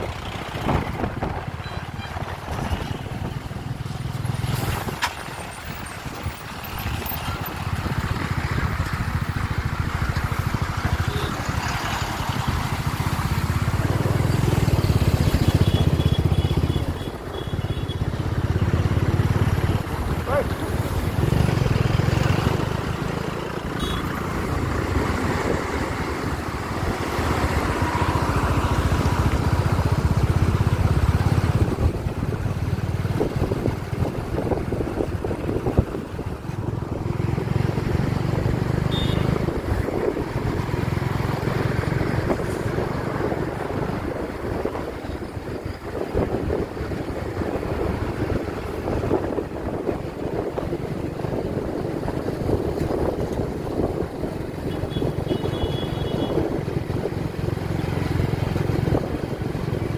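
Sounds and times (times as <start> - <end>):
wind buffeting microphone: 0.0 - 15.3, 24.4 - 38.7, 39.3 - 55.3
motorcycle engine running: 6.0 - 44.1
dump trucks rumbling: 18.3 - 54.7.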